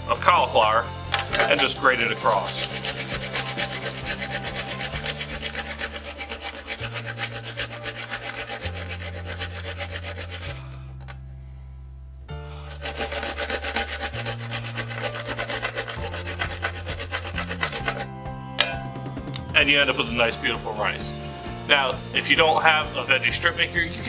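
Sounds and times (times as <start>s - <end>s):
background music with bass: 0.0s - 24.0s
cauliflower rasping on grater: 2.1s - 10.7s, 12.7s - 18.1s.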